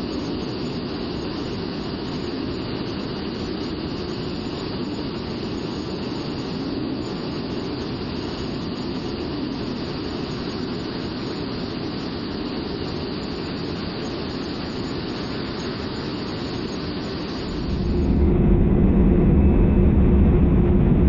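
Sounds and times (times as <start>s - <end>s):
jet engine roar in cockpit: 0.0s - 21.0s.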